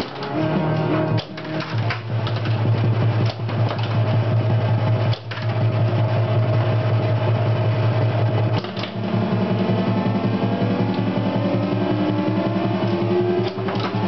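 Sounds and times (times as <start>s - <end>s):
pinball clicks and clacks: 0.0s - 4.3s, 5.0s - 5.7s, 8.6s - 14.0s
low drone from game speaker: 2.5s - 14.0s.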